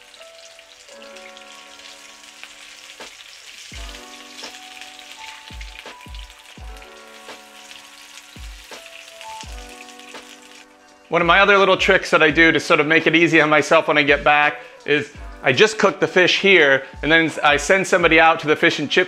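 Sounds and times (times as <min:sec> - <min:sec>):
fish sizzling in hot oil: 0:00.0 - 0:11.2.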